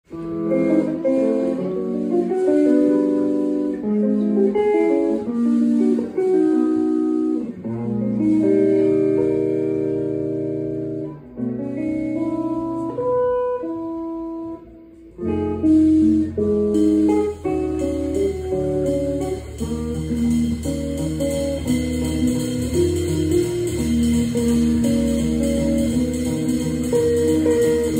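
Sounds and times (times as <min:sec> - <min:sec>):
jazz trio playing: 0:00.1 - 0:27.9
bass line: 0:15.2 - 0:27.9
cymbals: 0:15.4 - 0:27.9.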